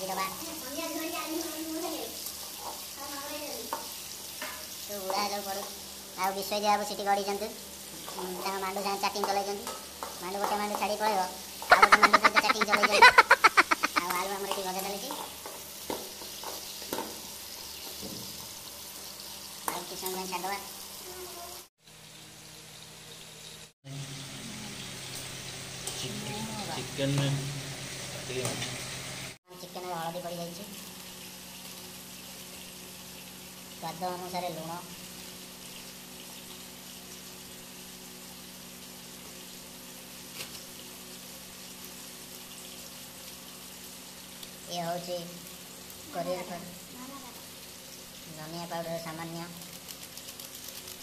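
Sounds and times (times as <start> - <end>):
potatoes sizzling in oil: 0.0 - 51.0.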